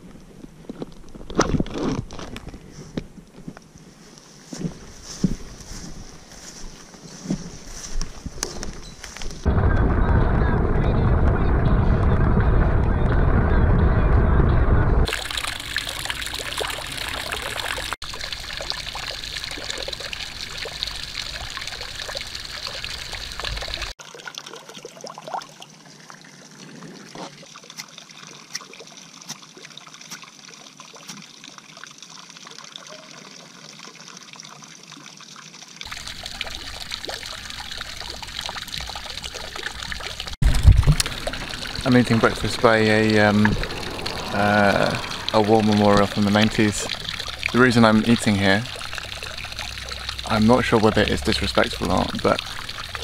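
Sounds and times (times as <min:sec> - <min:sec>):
water splashing into basin: 0:15.0 - 0:25.7, 0:35.8 - 0:53.0
steady rushing noise: 0:40.4 - 0:48.4.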